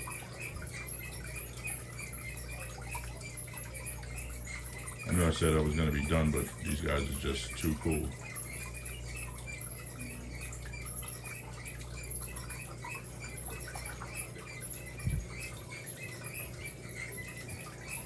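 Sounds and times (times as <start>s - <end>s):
clothes dryer humming: 0.0s - 8.7s
fast high-pitched ticking: 0.0s - 18.0s.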